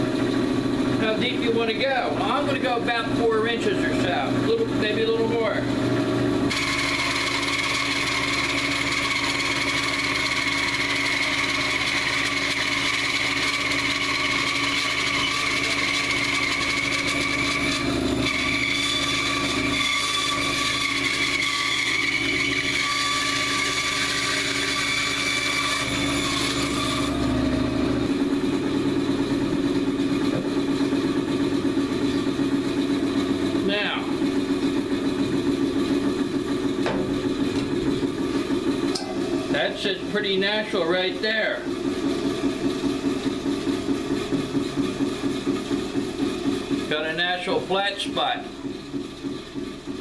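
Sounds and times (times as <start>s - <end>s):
bandsaw cutting log: 0.0s - 50.0s
high whine from the cut: 6.3s - 45.7s.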